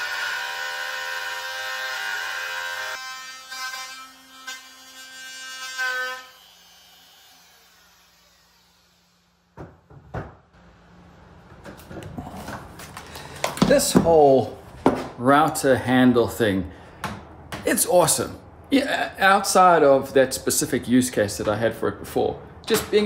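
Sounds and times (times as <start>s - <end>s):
router cutting wood: 0.0s - 9.3s.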